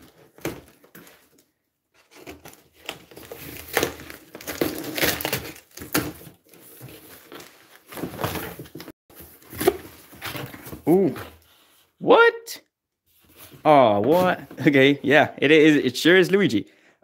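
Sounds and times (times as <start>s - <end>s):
cardboard scraping and crinkling: 0.0s - 11.9s, 13.1s - 15.0s.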